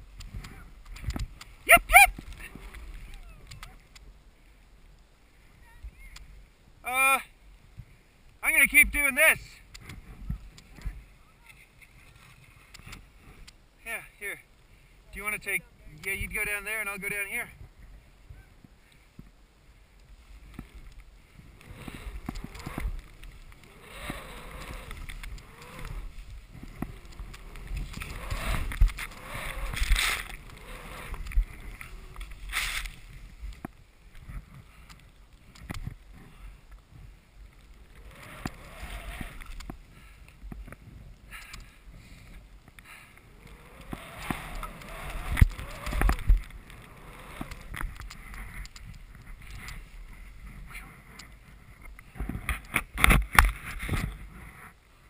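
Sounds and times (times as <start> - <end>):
skis carving through powder snow: 0.0 - 4.5, 15.2 - 55.0
wind buffeting microphone: 20.4 - 34.9.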